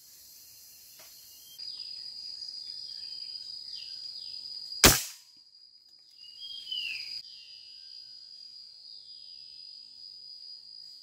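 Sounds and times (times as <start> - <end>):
gunshot: 4.8 - 5.2.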